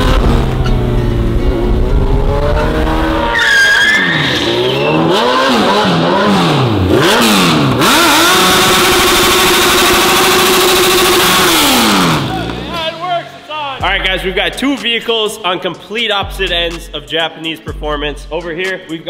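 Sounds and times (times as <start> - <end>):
motorcycle engine revving: 0.0 - 3.4, 4.4 - 12.9
tyre squealing: 3.1 - 5.8.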